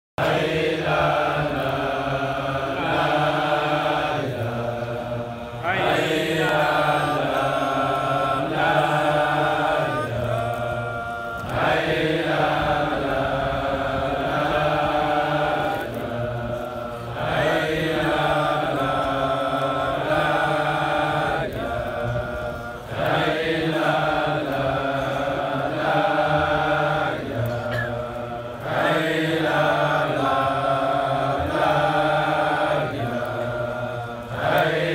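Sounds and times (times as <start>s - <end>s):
men chanting in unison: 0.2s - 34.9s.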